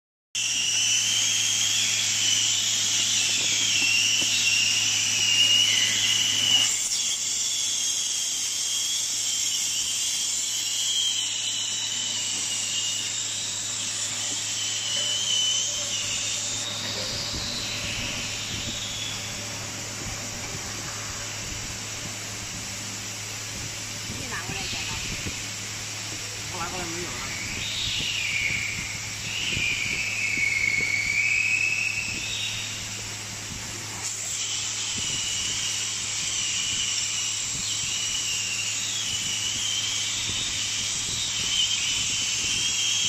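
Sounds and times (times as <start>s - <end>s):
hot air welder hissing: 0.4s - 43.0s
low hum: 10.3s - 42.8s.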